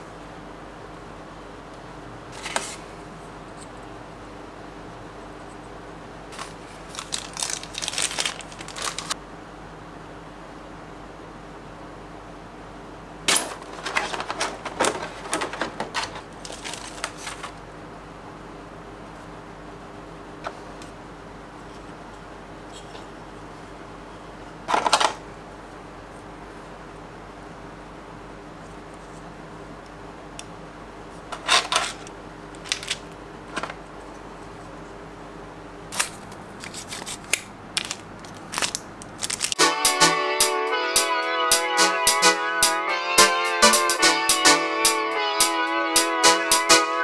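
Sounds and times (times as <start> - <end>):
faint steady hum: 0.0 - 47.0
foam and plastic being handled: 6.3 - 9.2, 13.3 - 17.6, 36.0 - 39.6.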